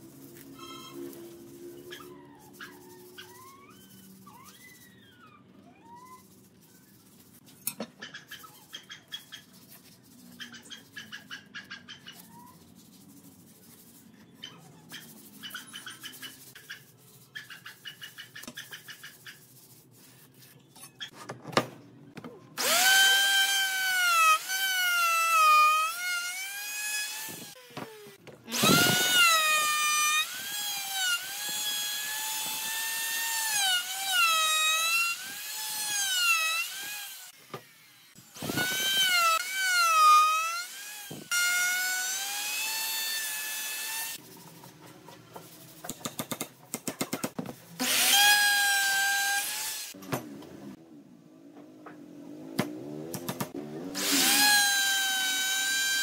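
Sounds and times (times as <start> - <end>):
power tool motor whining: 22.6 - 34.1, 34.7 - 44.2, 47.8 - 50.0, 53.9 - 56.0.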